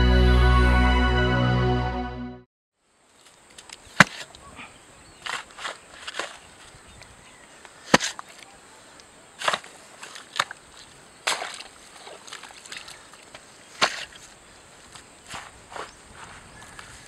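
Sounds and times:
faint outdoor background: 0:00.0 - 0:17.0
tool chopping strikes: 0:04.0 - 0:04.3, 0:07.9 - 0:08.2.

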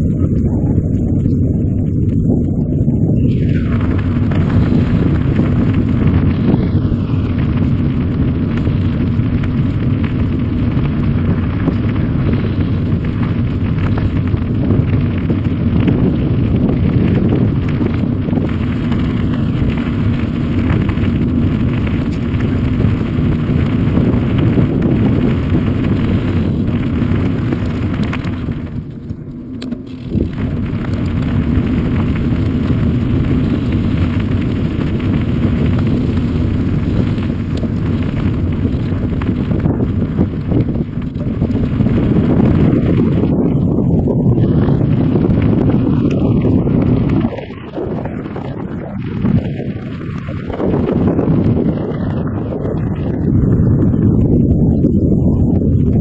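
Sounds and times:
bicycle tyres on gravel: 0:00.0 - 0:56.0
wind buffeting microphone: 0:00.0 - 0:56.0.

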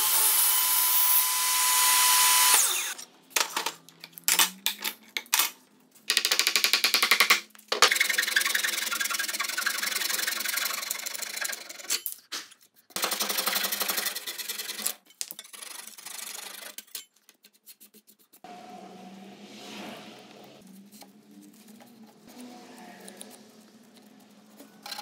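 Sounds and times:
hand saw cutting wood: 0:00.0 - 0:03.0, 0:07.9 - 0:11.8.

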